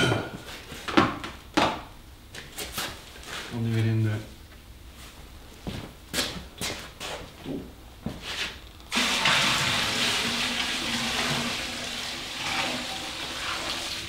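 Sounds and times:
liquid pouring and splashing: 8.9 - 14.0.

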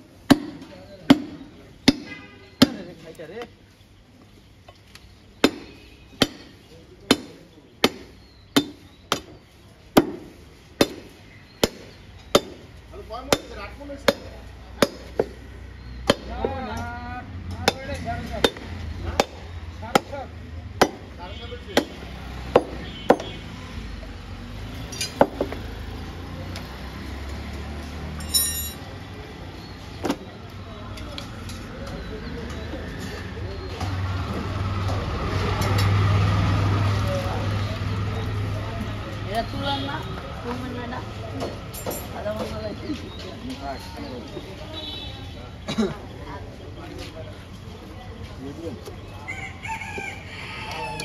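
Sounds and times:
cleaver chopping on wooden block: 0.3 - 2.9, 5.4 - 9.4, 10.0 - 12.7, 13.3 - 15.4, 16.0 - 16.6, 17.6 - 20.2, 20.8 - 21.2, 21.8 - 23.4
metal blade clinking on steel: 28.2 - 28.8.

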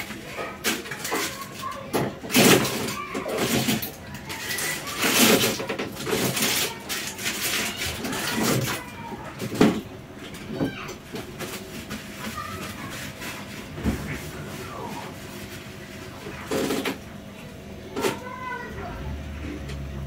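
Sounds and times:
bread and paper rustling: 0.0 - 9.6, 11.2 - 16.9.

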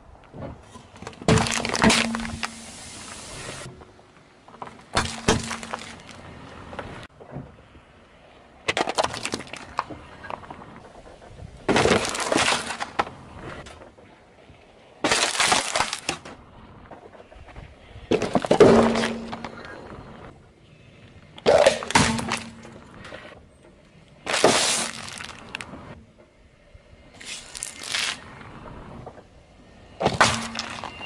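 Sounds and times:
car tyre crushing objects: 0.2 - 20.4, 21.4 - 23.4, 24.0 - 31.0.

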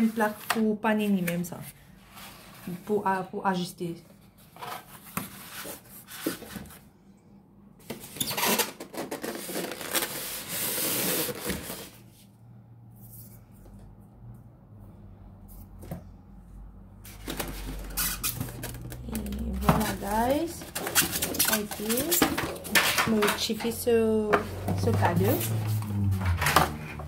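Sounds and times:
cardboard and styrofoam rustling: 7.9 - 12.1, 17.0 - 23.7.

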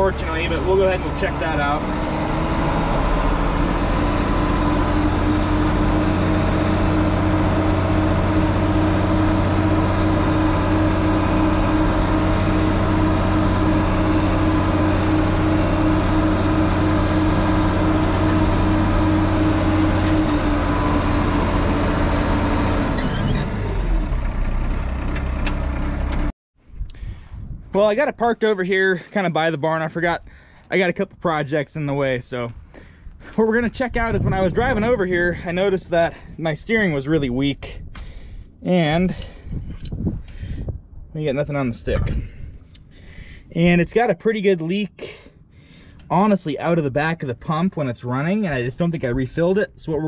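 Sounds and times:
diesel tractor engine running: 0.0 - 26.3, 32.5 - 44.1.

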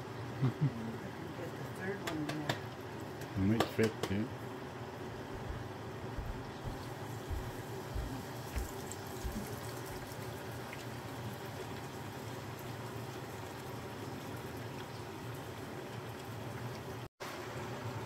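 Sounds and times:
dough sizzling in oil: 6.6 - 18.0.

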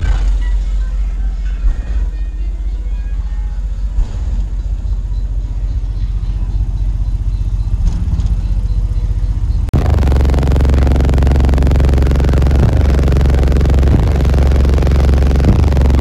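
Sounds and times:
deep subwoofer bass rumble: 8.7 - 16.0.

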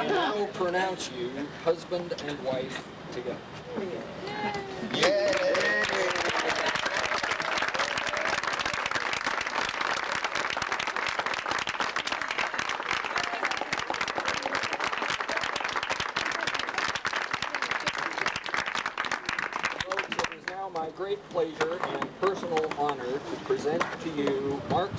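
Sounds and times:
crowd applauding: 4.9 - 20.6.

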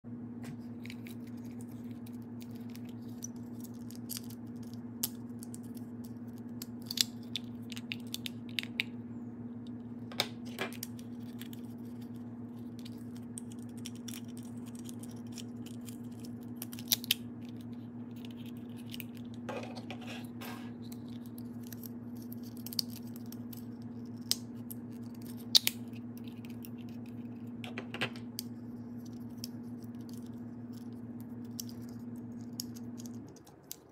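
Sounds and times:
steady low hum: 0.0 - 33.9
plastic toys clicking and snapping: 29.3 - 33.9.

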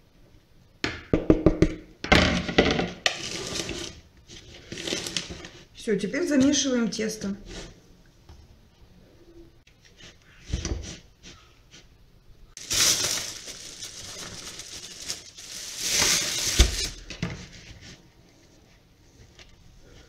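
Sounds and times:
plastic bag rustling: 3.1 - 5.7, 12.6 - 17.6.

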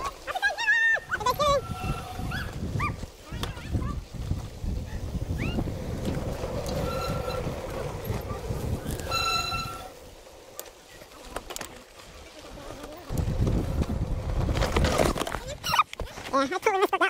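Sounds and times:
wind buffeting microphone: 1.0 - 10.5, 12.1 - 15.7
bike tyres rumbling on dirt: 1.0 - 16.4
high-pitched squeal: 1.2 - 2.6, 6.6 - 10.1.

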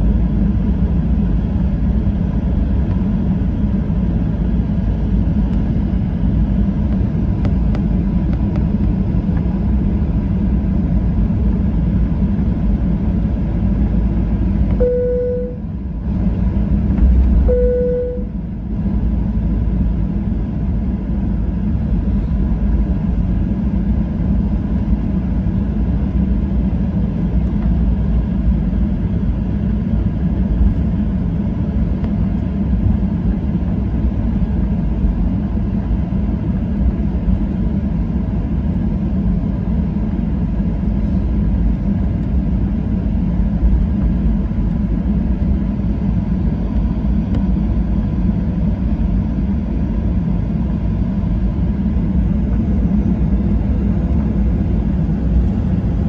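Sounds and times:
airplane cabin rumble: 0.0 - 56.0
faint steady whine: 12.8 - 26.0.

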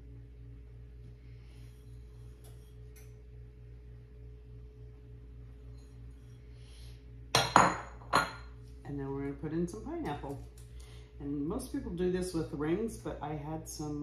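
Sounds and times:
steady low hum: 0.0 - 14.0
bowls clattering on countertop: 7.4 - 8.6.

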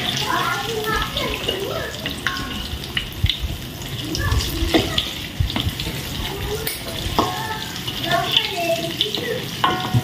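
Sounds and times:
food sizzling in hot oil: 0.0 - 10.0
utensil knocking against pan: 6.7 - 7.6, 9.6 - 10.0.

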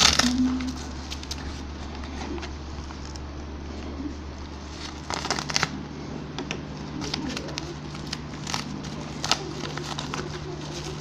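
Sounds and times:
bubble wrap envelope crackling: 0.0 - 3.3, 4.4 - 11.0
steady low hum: 0.0 - 11.0.

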